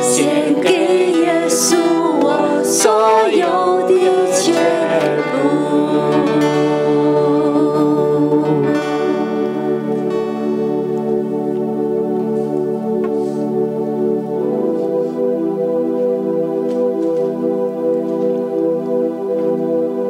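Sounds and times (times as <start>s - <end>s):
woman singing: 0.0s - 9.6s
acoustic guitar: 0.0s - 15.3s
keyboard chords: 0.0s - 20.0s.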